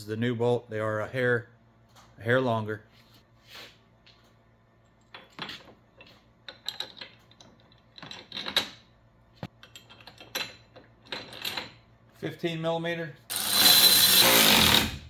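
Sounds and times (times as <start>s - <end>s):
metal bolts and nuts rattling: 4.9s - 11.9s.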